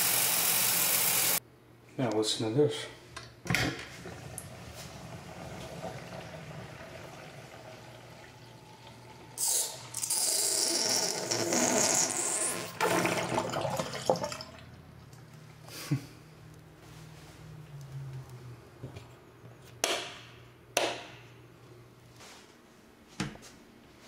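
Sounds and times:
sink drain trickling and gurgling: 4.2s - 15.3s.

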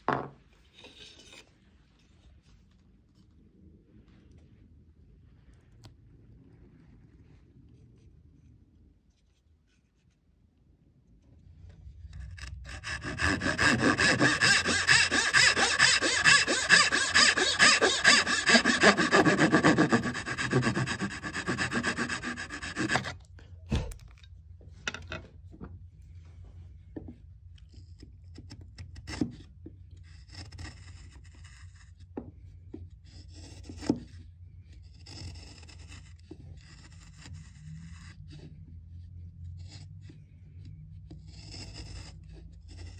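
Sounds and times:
hand tool scraping on wood: 12.2s - 23.2s.

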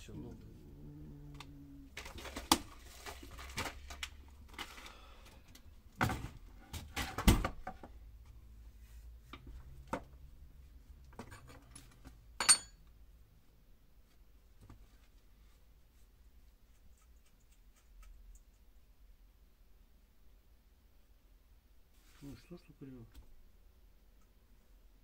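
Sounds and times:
ringing metallic clink: 12.4s - 12.8s.

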